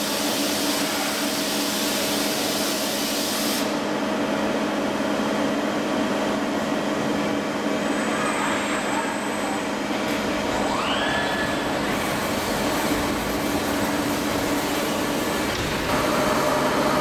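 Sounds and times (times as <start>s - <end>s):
loud air hiss: 0.0s - 3.8s
machine hum: 3.7s - 17.0s.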